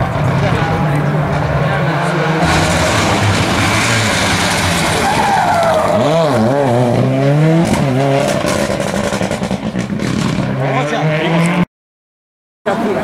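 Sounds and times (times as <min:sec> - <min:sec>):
rally car engine revving: 0:00.0 - 0:11.7
tyres sliding on gravel: 0:02.4 - 0:07.0.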